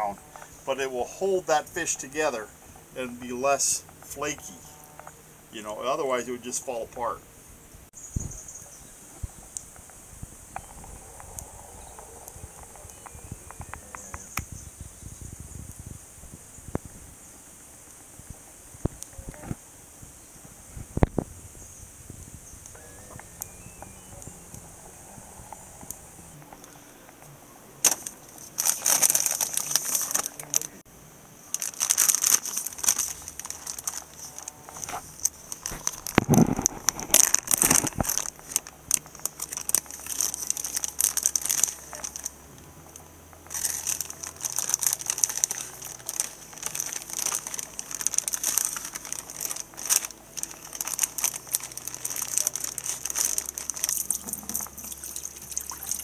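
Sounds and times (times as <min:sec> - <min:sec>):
plastic bag crinkling: 0:27.8 - 0:30.8, 0:31.4 - 0:56.0.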